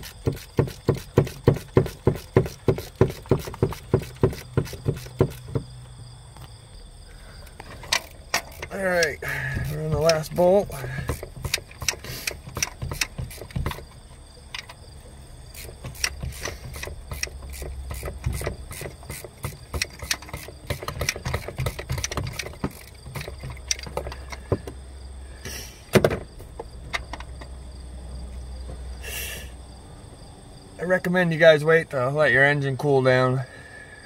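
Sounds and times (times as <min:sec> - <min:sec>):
socket ratchet clicking: 0:00.0 - 0:05.6, 0:07.6 - 0:14.8, 0:15.5 - 0:24.5
crickets trilling: 0:00.0 - 0:34.0
metal clunk: 0:07.5 - 0:14.8, 0:25.9 - 0:27.5.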